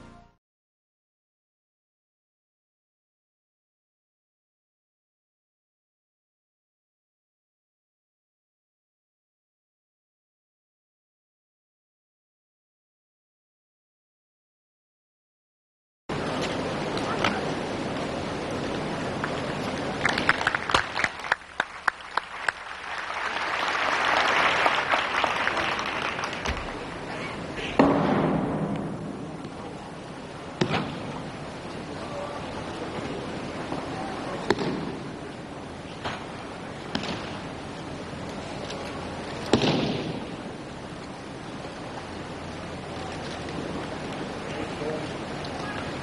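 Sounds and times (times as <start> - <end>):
steady hiss: 16.1 - 46.0
audience applause: 19.1 - 27.5.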